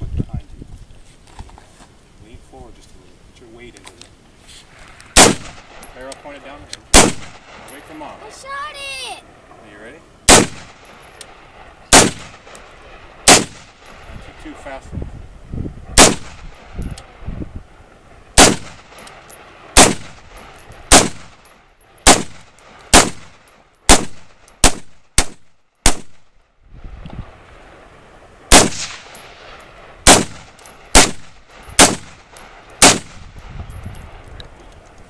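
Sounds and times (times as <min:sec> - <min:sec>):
rifle shots with echo: 0:05.1 - 0:06.1, 0:06.9 - 0:08.2, 0:10.3 - 0:11.1, 0:11.9 - 0:14.6, 0:16.0 - 0:16.7, 0:18.4 - 0:26.3, 0:28.5 - 0:33.4.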